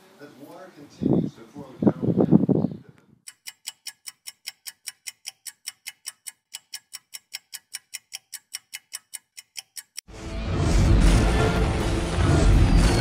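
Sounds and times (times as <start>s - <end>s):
fast clock ticking: 3.3s - 10.1s.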